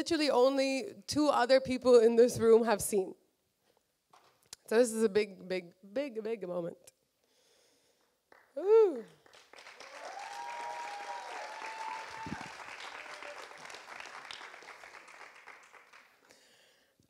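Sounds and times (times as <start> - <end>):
person whooping: 8.6 - 9.2, 9.8 - 13.8
audience applauding: 9.2 - 16.3.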